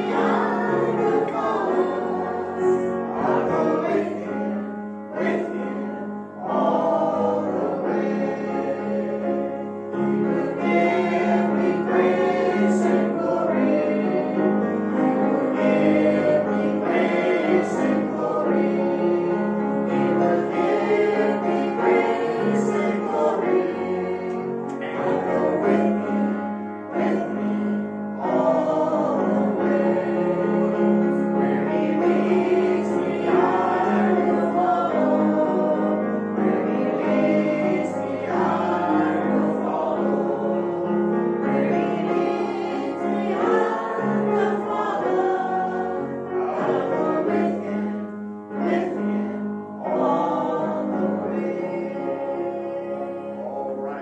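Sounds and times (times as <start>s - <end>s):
choir singing a hymn: 0.0s - 54.0s.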